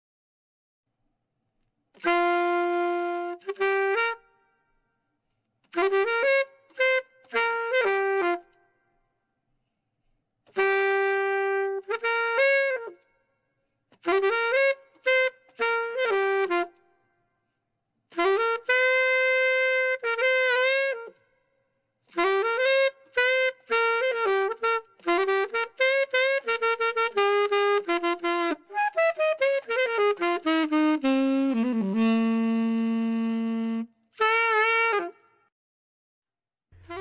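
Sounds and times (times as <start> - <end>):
jazz wind instrument solo: 2.0 - 4.4, 5.6 - 8.6, 10.5 - 13.1, 13.9 - 16.9, 18.1 - 21.2, 22.0 - 35.5, 36.8 - 37.0.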